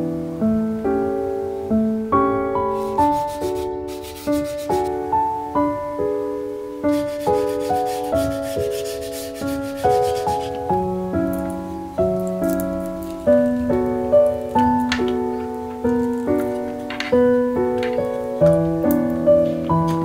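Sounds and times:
gentle piano music: 0:00.0 - 0:20.0
cloth wiping wooden basket: 0:02.8 - 0:04.9, 0:06.8 - 0:10.7.

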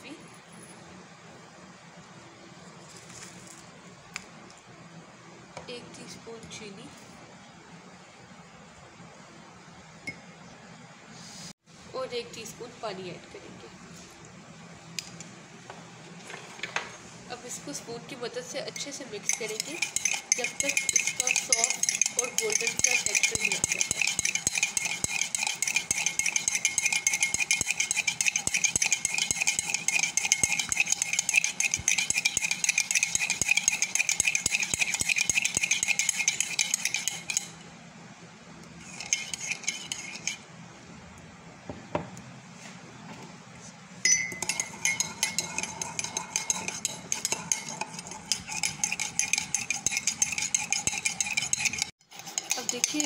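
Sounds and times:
spoon clinking against mug: 0:18.8 - 0:37.6, 0:38.9 - 0:40.4, 0:44.1 - 0:53.0.

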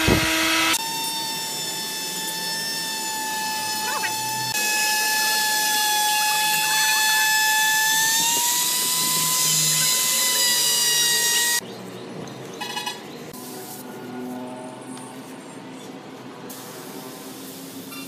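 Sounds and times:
electric router cutting wood: 0:00.0 - 0:11.6.

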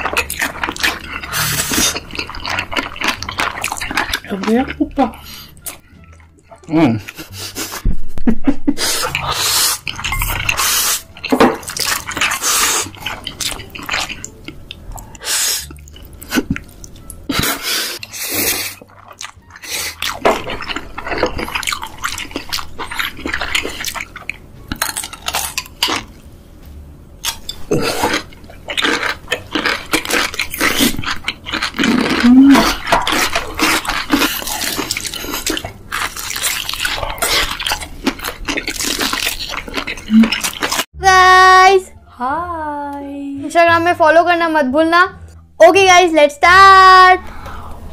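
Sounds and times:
chewing food: 0:00.0 - 0:07.8, 0:08.8 - 0:26.2, 0:27.2 - 0:40.9
noodles slurped: 0:08.8 - 0:14.4, 0:17.3 - 0:26.1, 0:27.7 - 0:40.8.

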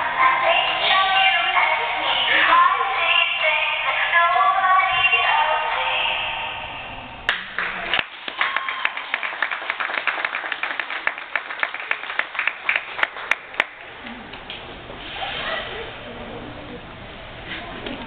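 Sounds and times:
small audience applauding: 0:07.3 - 0:14.5.

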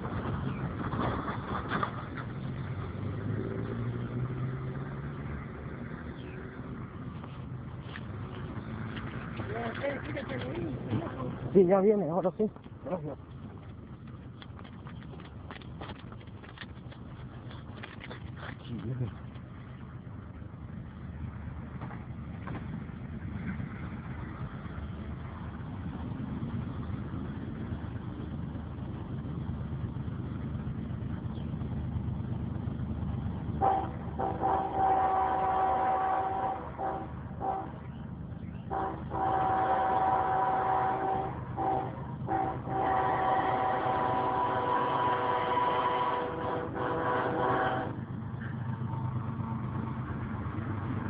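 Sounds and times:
car passing: 0:00.0 - 0:51.0
diesel locomotive rumble: 0:00.0 - 0:51.0
locomotive air horn blasts: 0:33.6 - 0:37.8, 0:38.7 - 0:48.0.

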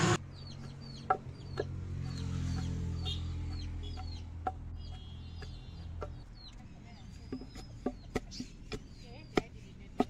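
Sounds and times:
high bird chirps: 0:00.2 - 0:09.6
pestle thudding in wooden mortar: 0:02.6 - 0:10.0.

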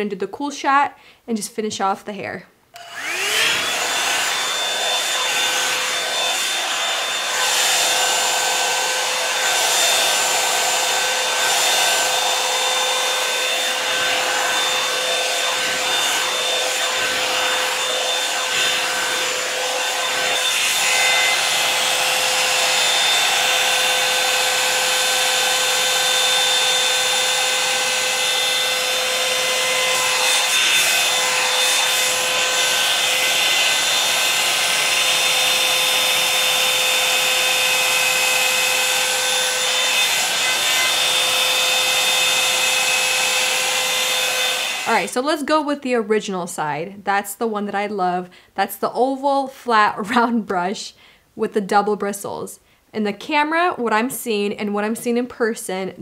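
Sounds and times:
hair dryer air rush and whine: 0:02.7 - 0:45.2.

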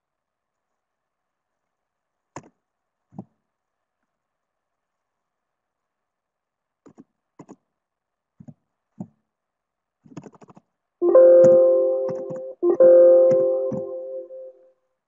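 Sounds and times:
electronic chime chord: 0:11.0 - 0:14.6
faint clicks and taps: 0:11.4 - 0:12.5.

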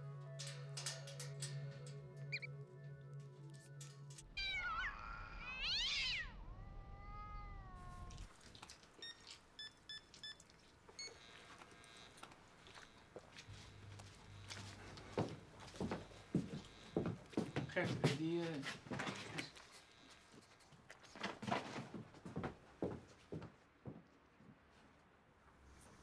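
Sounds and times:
background music: 0:00.0 - 0:04.4
cat meowing: 0:04.3 - 0:08.4.

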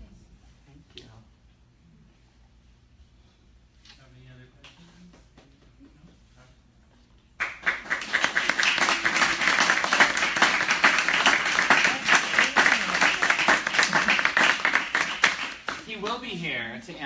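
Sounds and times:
audience applause: 0:07.4 - 0:15.9.

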